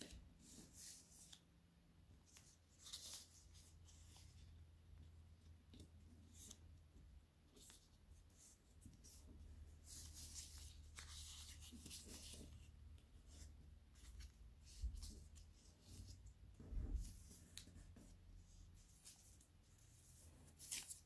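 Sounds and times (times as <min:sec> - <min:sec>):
paper rustling and crinkling: 0:09.8 - 0:17.9, 0:20.2 - 0:21.0.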